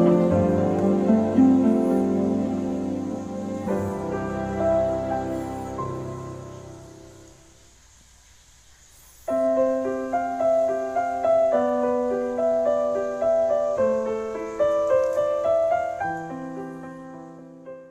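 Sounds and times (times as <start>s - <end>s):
gentle piano music: 0.0s - 7.7s, 9.2s - 17.9s.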